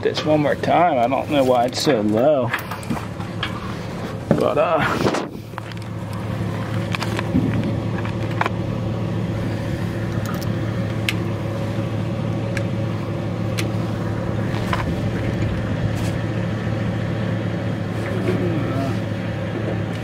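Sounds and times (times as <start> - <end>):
vehicle engine idling: 0.0 - 20.0.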